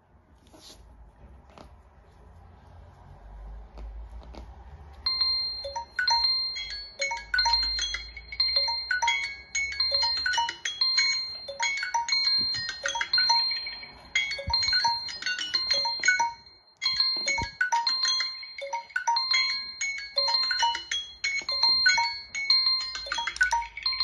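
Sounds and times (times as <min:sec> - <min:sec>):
smartphone alarm chimes and beeps: 0:05.1 - 0:24.0.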